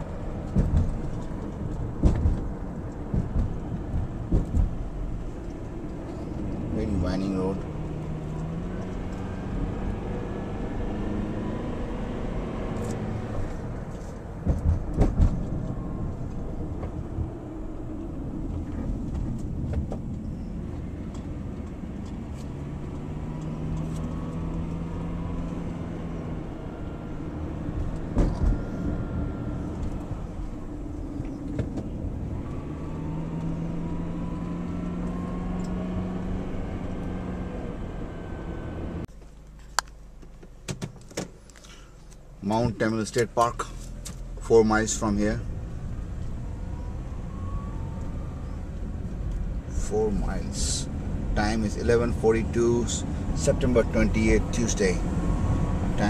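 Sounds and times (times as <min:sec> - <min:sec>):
car engine: 0:00.0 - 0:56.0
road noise: 0:00.0 - 0:56.0
short thumps: 0:00.4 - 0:05.0, 0:14.4 - 0:15.6.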